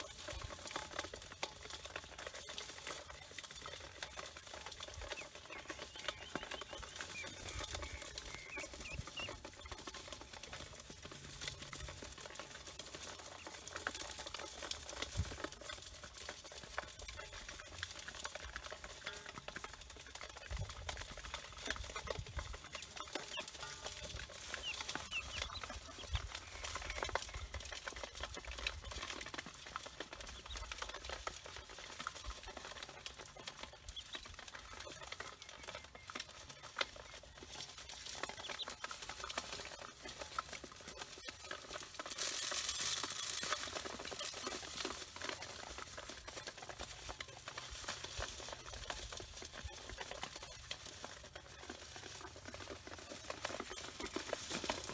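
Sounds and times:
birds shuffling in metal basin: 0.0s - 54.9s
ducklings peeping: 0.0s - 54.9s.

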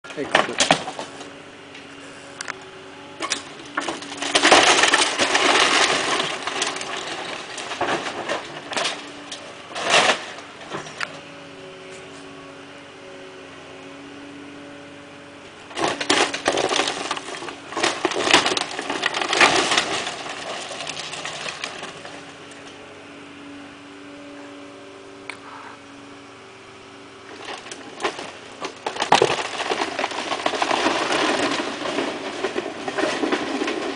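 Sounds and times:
excavator engine hum: 0.0s - 33.9s
sharp wood cracks: 0.1s - 1.3s, 3.2s - 11.2s, 15.7s - 22.6s, 27.3s - 33.9s
timber and roofing crashing: 0.1s - 1.3s, 3.2s - 11.1s, 15.7s - 22.3s, 27.3s - 33.9s.

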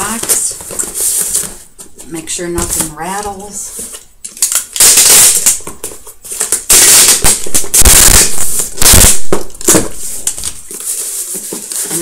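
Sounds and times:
packing tape screeching off roll: 4.4s - 12.0s.

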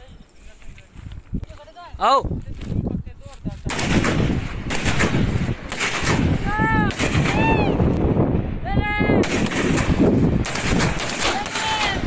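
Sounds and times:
rapid rifle shots: 3.7s - 7.6s, 9.2s - 12.0s.

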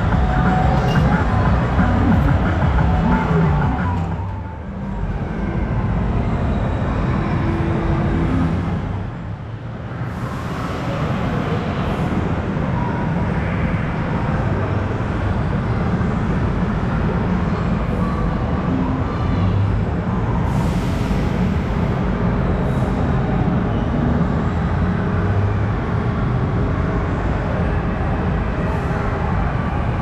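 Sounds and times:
indoor hall din: 0.0s - 6.1s.

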